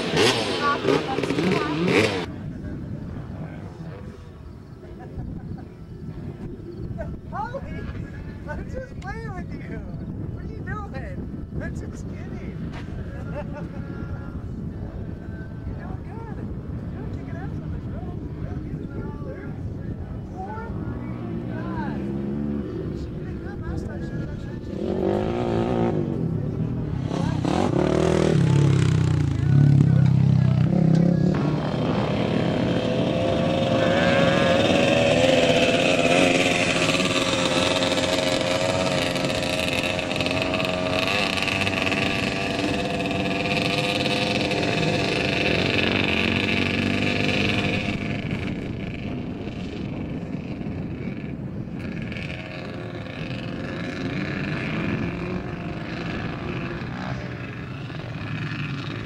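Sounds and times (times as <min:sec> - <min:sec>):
dirt bike engine revving: 0:00.0 - 0:02.4, 0:24.6 - 0:59.0.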